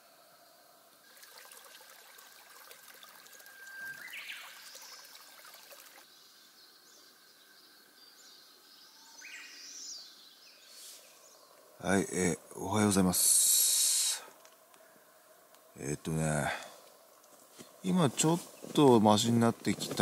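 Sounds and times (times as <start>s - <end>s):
stream trickling over stones: 1.0s - 6.2s
bird rising call: 3.1s - 5.3s
faint high chirps: 3.1s - 5.4s.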